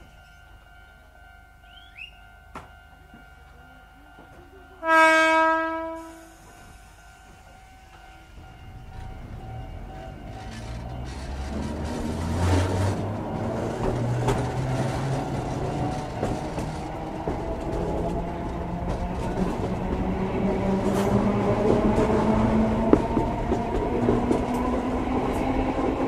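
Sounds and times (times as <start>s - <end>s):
wheels running on rails: 6.5s - 26.0s.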